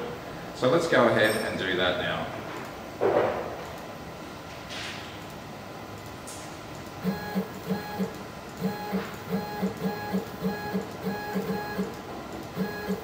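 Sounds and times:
stepper motor buzzing: 0:07.0 - 0:13.0.

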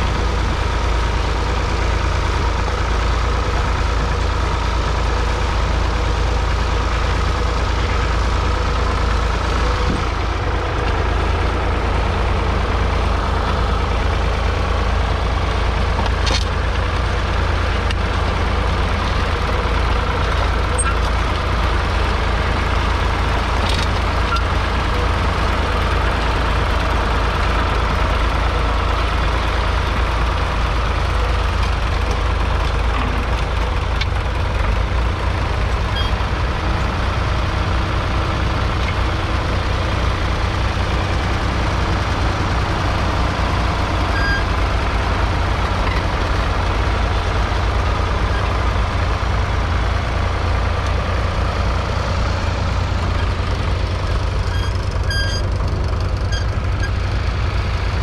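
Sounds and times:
diesel tractor engine under load: 0:00.0 - 0:58.0.

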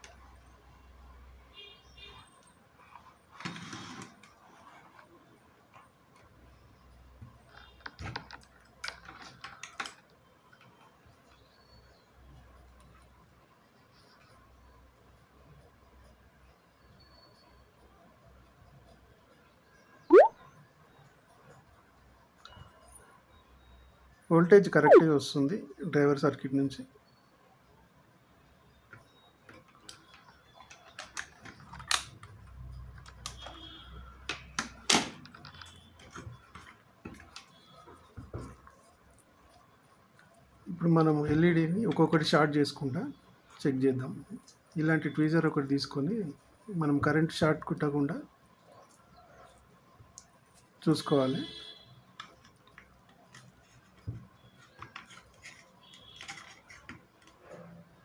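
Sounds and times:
handling clicks and knocks: 0:28.9 - 0:33.6.

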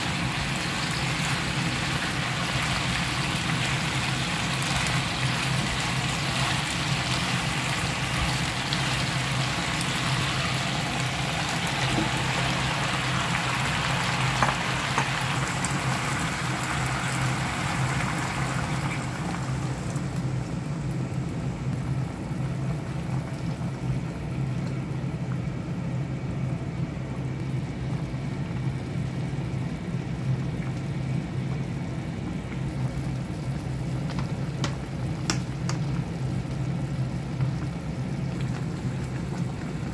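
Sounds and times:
food sizzling in a frying pan: 0:00.0 - 0:23.9.

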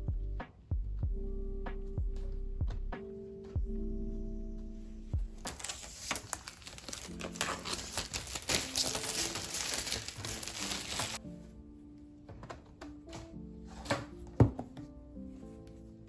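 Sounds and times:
plastic wrapping crinkling: 0:05.4 - 0:11.2.

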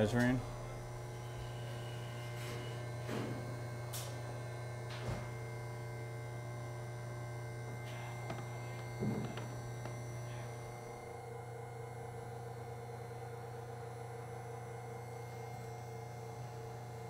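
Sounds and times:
pump humming: 0:00.0 - 0:17.0
soft knocks: 0:08.2 - 0:10.0.

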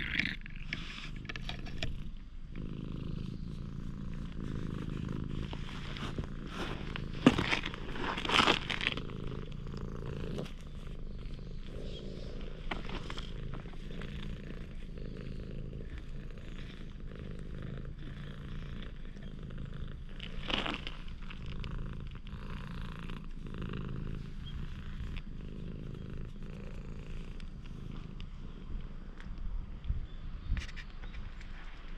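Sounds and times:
cat purring: 0:00.0 - 0:30.8.

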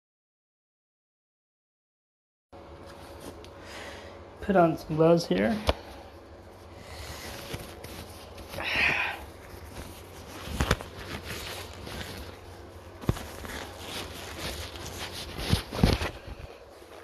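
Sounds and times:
vinyl gloves rustling: 0:02.6 - 0:03.5, 0:04.5 - 0:17.0.

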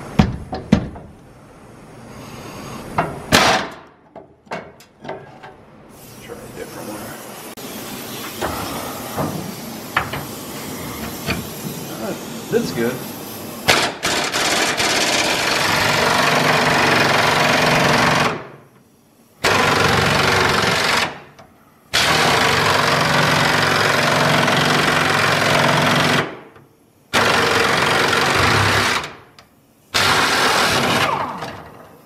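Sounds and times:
impact wrench hammering on bolt: 0:13.7 - 0:18.5.

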